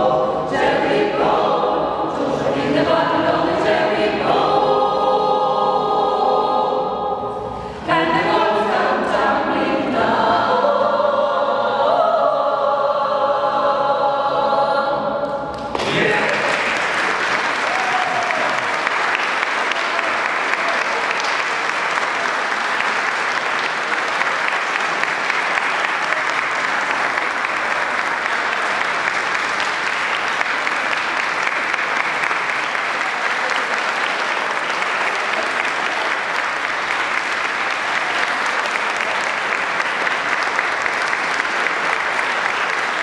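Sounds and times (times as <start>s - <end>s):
audience applauding: 15.5s - 43.0s.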